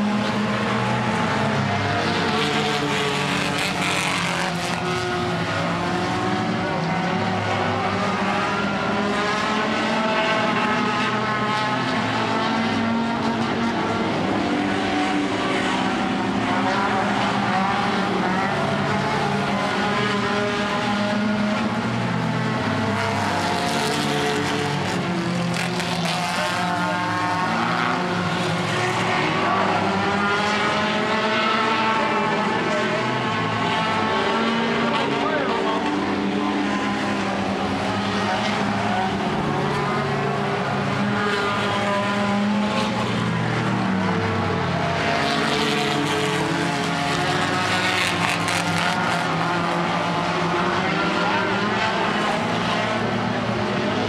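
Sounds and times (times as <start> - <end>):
race car engines: 0.0 - 54.0.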